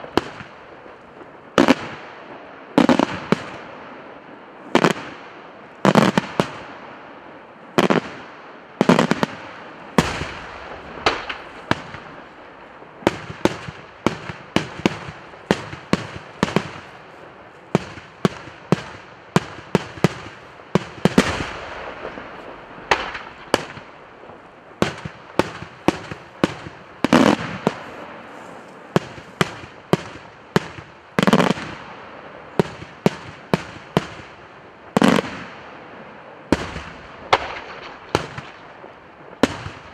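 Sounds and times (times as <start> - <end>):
fireworks banging: 0.0 - 35.5, 36.5 - 39.9
heavy firework booms: 8.8 - 34.3.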